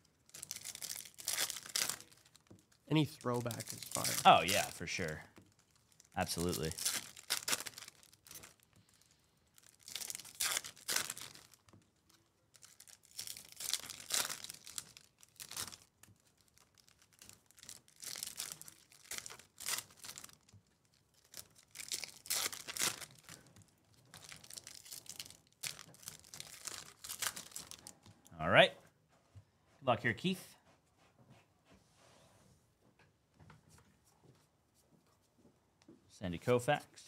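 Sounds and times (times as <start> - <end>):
foil card packs tearing and crinkling: 0.3 - 8.6, 9.6 - 11.7, 12.5 - 28.0.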